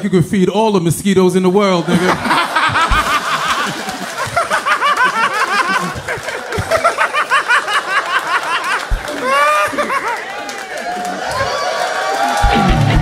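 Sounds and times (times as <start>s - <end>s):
people laughing hard: 1.8s - 13.0s.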